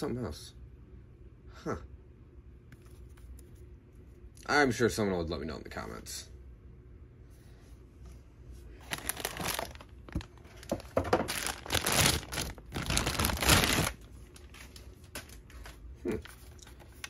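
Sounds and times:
plastic bag crinkling: 0:08.8 - 0:17.0.

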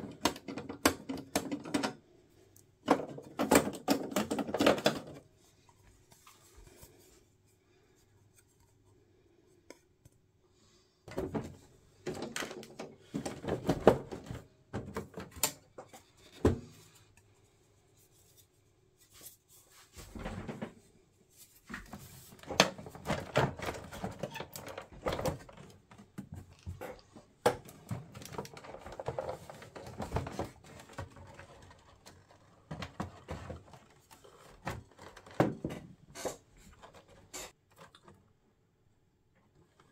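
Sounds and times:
plastic clicks and knocks: 0:00.0 - 0:02.0.

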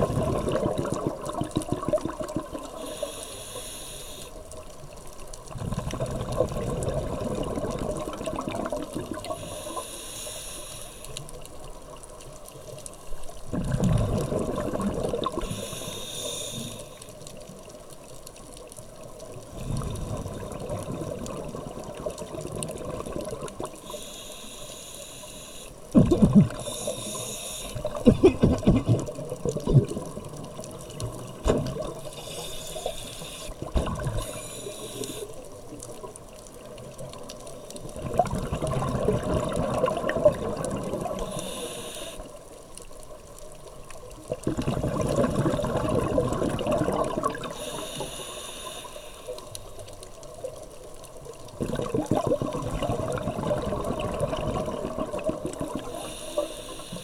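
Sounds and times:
exhaled air bubbling: 0:00.0 - 0:03.6, 0:05.4 - 0:09.8, 0:13.2 - 0:17.4, 0:18.9 - 0:42.4, 0:43.8 - 0:57.0
regulator inhale hiss: 0:02.6 - 0:04.6, 0:09.2 - 0:11.4, 0:15.3 - 0:17.3, 0:23.6 - 0:28.0, 0:31.7 - 0:35.8, 0:41.0 - 0:42.5, 0:47.4 - 0:50.0, 0:55.7 - 0:57.0.

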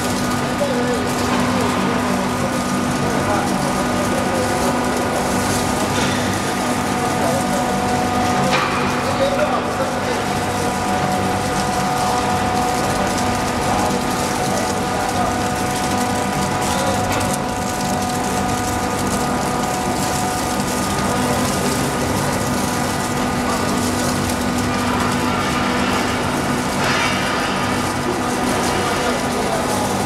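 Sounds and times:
ice machine mechanical hum: 0:00.0 - 0:30.0
ice flakes crackling and dropping: 0:07.2 - 0:30.0.

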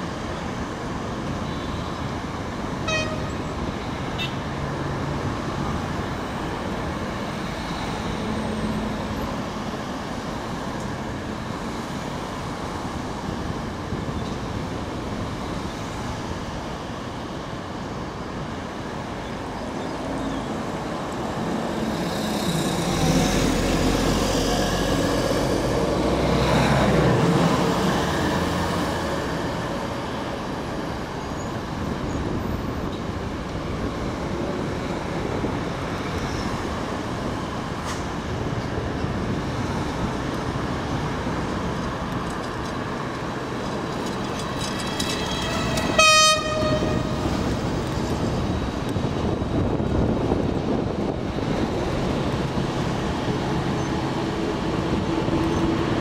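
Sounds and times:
city road traffic: 0:00.0 - 0:56.0
rail yard noise: 0:00.0 - 0:56.0
heavy vehicle passing rumble: 0:31.6 - 0:56.0.

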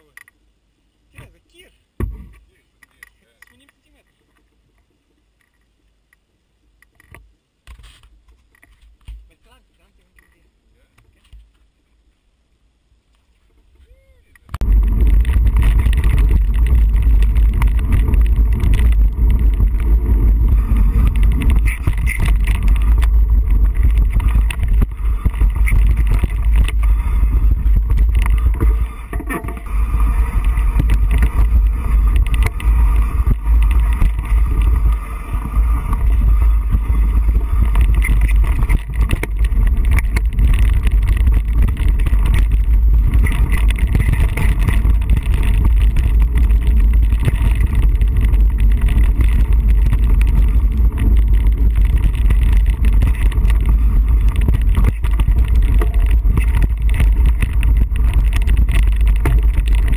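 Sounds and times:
wind buffeting microphone: 0:14.5 - 0:59.9
bike rattling and knocking: 0:14.6 - 0:59.9.

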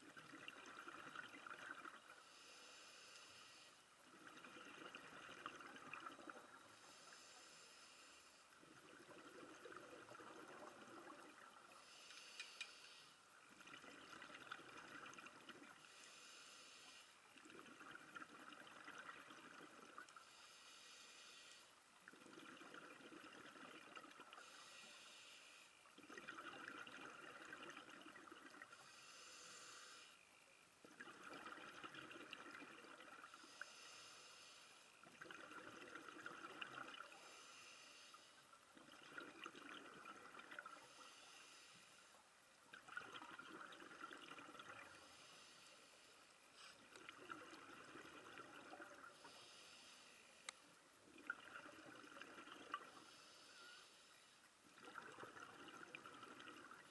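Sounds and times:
regulator breathing hiss: 0:11.8 - 0:13.2, 0:15.9 - 0:17.2, 0:20.2 - 0:21.7, 0:24.4 - 0:25.8, 0:28.8 - 0:30.2, 0:33.4 - 0:34.9, 0:37.1 - 0:38.4, 0:40.8 - 0:42.2, 0:45.0 - 0:46.9, 0:49.2 - 0:50.5, 0:53.0 - 0:54.4.

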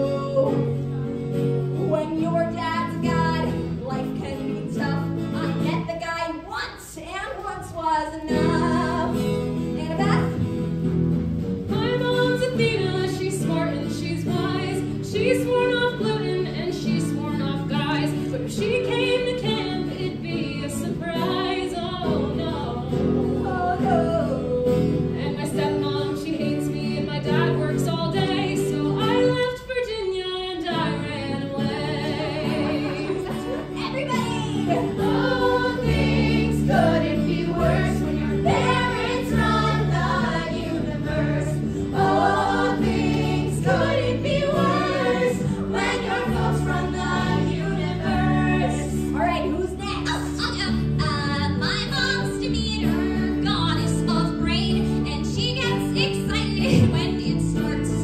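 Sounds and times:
acoustic guitar: 0:00.0 - 0:58.0
cast voices singing together: 0:31.2 - 0:49.1.

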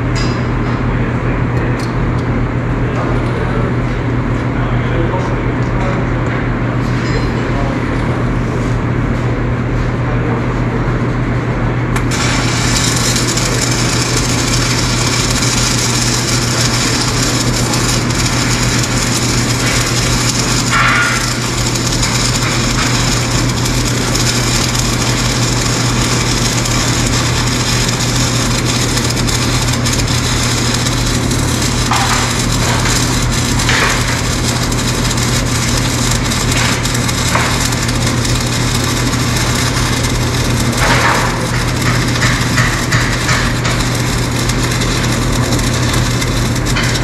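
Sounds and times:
low hum: 0:11.9 - 0:47.0
welding arc crackling: 0:11.9 - 0:47.0.

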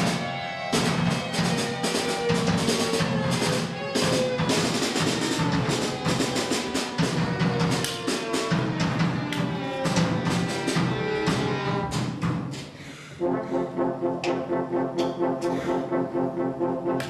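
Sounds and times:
pulsing orchestral chords: 0:00.0 - 0:05.0, 0:13.1 - 0:17.0
orchestra sustained lines: 0:00.0 - 0:12.0, 0:13.2 - 0:17.0
orchestral percussive strikes: 0:00.0 - 0:17.0.

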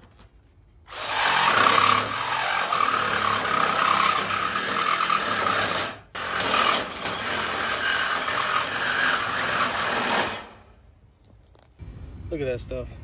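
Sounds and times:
reciprocating saw cutting steel pipe: 0:00.9 - 0:10.6.

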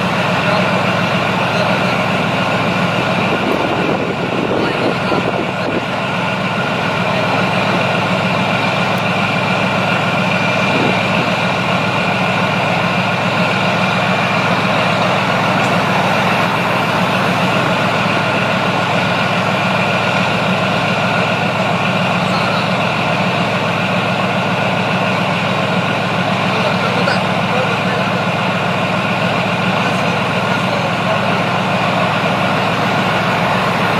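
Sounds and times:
diesel engine idling: 0:00.0 - 0:33.9
high whine: 0:08.9 - 0:24.6.

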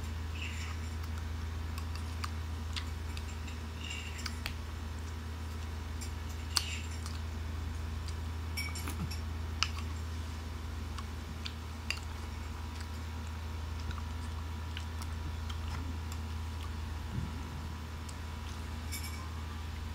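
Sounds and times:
wet chewing clicks: 0:00.0 - 0:19.0
steady low hum: 0:00.0 - 0:19.9.

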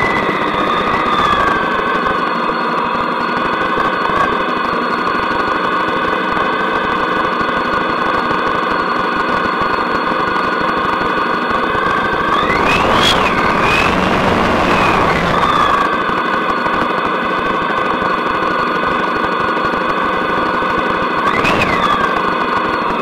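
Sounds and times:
motorcycle engine running steadily: 0:00.0 - 0:23.0.

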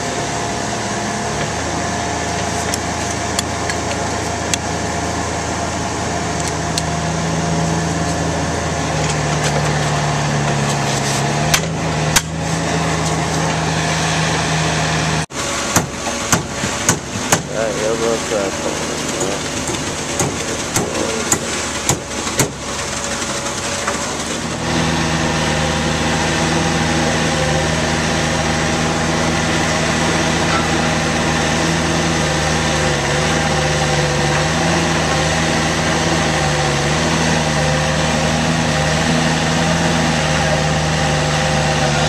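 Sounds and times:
truck engine running: 0:00.0 - 0:42.0
sharp knocks: 0:15.7 - 0:17.6, 0:19.6 - 0:22.6.

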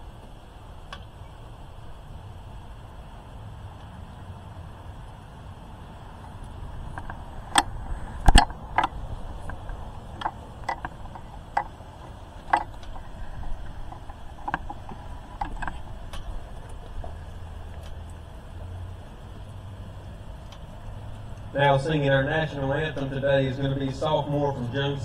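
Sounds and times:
low background hiss: 0:00.0 - 0:25.0
sharp clicks and knocks: 0:06.3 - 0:18.2.

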